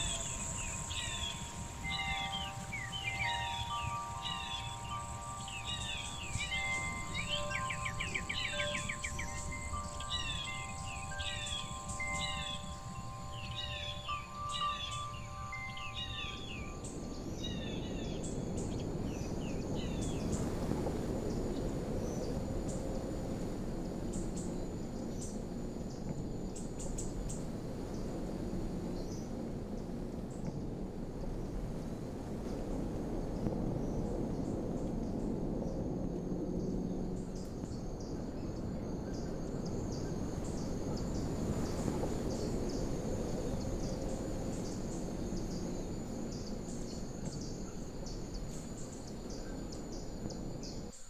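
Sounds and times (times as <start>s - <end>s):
thin high tone: 0.0s - 18.6s
wind chimes ringing: 0.0s - 18.7s
bird trill: 0.0s - 20.4s
steady low rumble: 0.0s - 51.0s.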